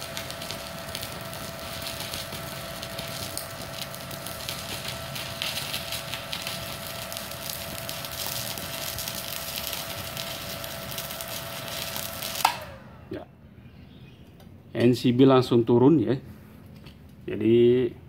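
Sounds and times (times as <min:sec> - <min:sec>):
welding arc crackling: 0:00.0 - 0:12.9
welder whine: 0:00.0 - 0:15.7.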